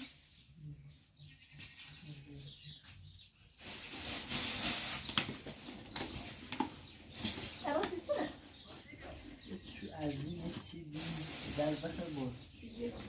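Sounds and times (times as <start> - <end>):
bags rustling: 3.6 - 9.0, 10.0 - 13.0.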